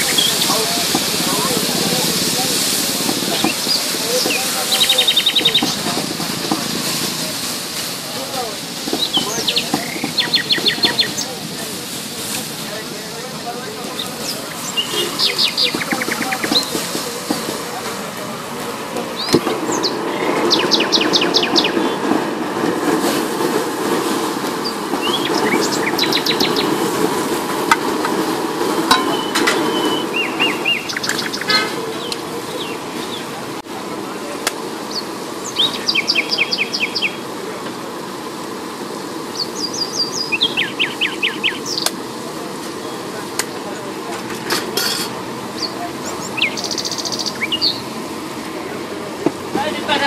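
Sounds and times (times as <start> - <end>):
bird trilling: 0.0 - 0.8, 3.2 - 5.9, 9.0 - 11.4, 14.0 - 16.8, 19.2 - 22.0, 24.6 - 26.8, 29.0 - 33.2, 34.9 - 37.2, 39.4 - 41.9, 45.6 - 47.9.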